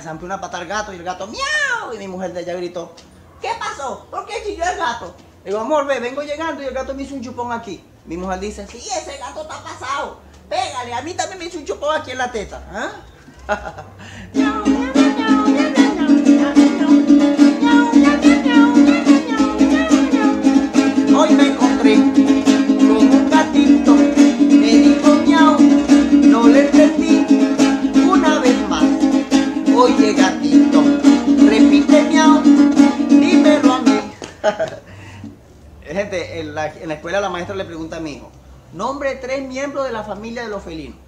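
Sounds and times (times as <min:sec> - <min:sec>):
small guitar strummed fast: 0:14.3 - 0:34.1.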